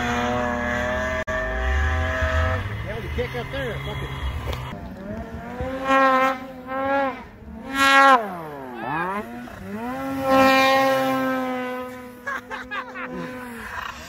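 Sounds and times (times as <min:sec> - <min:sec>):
snowmobile engine revving: 0:00.0 - 0:14.0.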